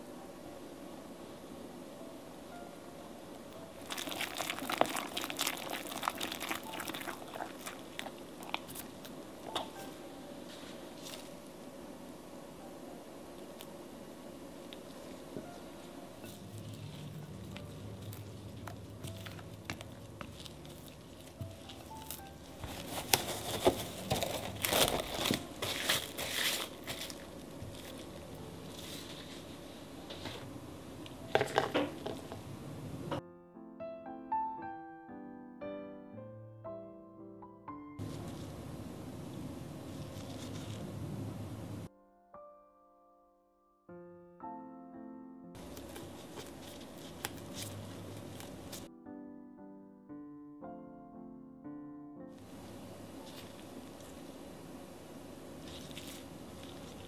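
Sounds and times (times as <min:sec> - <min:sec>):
cling wrap crinkling: 0:03.8 - 0:11.5, 0:16.2 - 0:30.4, 0:39.7 - 0:41.0, 0:45.6 - 0:48.9, 0:52.4 - 0:54.4, 0:55.5 - 0:57.0
whisk stirring thick batter: 0:03.9 - 0:09.0
cling wrap snapping: 0:16.2 - 0:29.4, 0:45.6 - 0:48.9.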